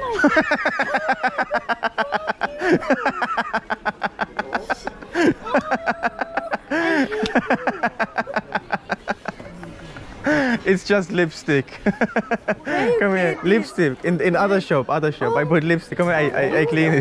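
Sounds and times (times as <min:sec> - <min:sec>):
loud laughter: 0:00.0 - 0:09.4.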